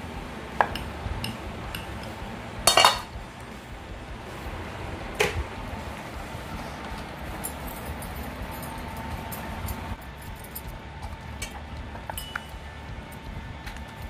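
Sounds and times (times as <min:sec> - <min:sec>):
utensils knocking on stone board: 0:00.6 - 0:03.1, 0:11.4 - 0:12.6.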